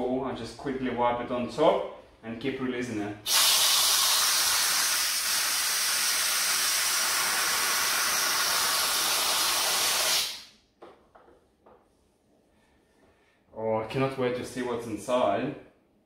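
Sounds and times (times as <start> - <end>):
pressure cooker venting steam: 3.3 - 10.4.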